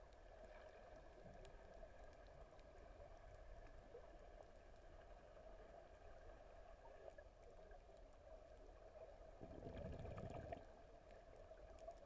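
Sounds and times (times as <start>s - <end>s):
faint crackles: 0.0s - 12.0s
underwater low hum: 0.0s - 12.0s.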